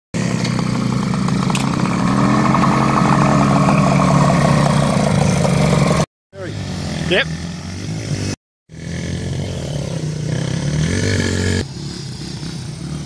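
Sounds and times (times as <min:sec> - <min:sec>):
two-stroke motorcycle engine running: 0:00.2 - 0:06.0.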